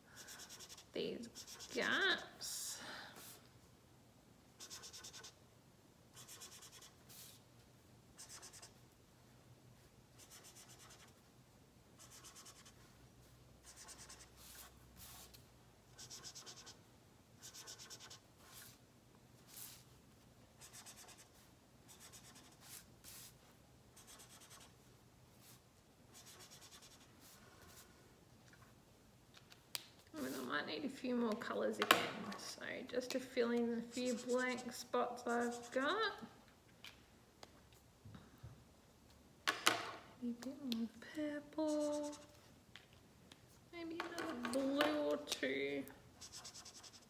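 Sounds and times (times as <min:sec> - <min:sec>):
felt-tip marker scratching on paper: 0:00.2 - 0:01.9, 0:04.6 - 0:05.4, 0:06.1 - 0:07.4, 0:08.2 - 0:08.8, 0:10.2 - 0:11.2, 0:12.0 - 0:12.8, 0:13.6 - 0:15.3, 0:15.9 - 0:16.8, 0:17.4 - 0:18.8, 0:20.6 - 0:23.3, 0:24.0 - 0:24.8, 0:26.1 - 0:27.8, 0:33.9 - 0:35.9, 0:41.7 - 0:42.4, 0:46.2 - 0:47.0.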